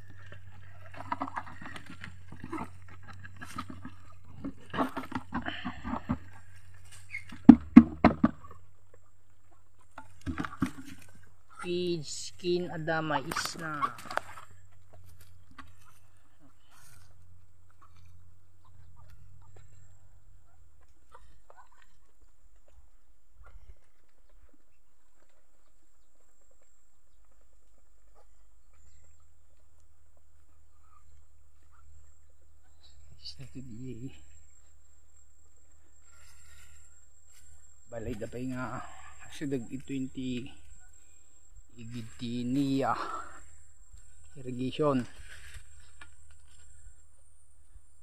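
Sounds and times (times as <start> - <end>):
plastic bucket knocking on trough: 7.4 - 8.4
chickens and ducks calling: 8.3 - 24.8.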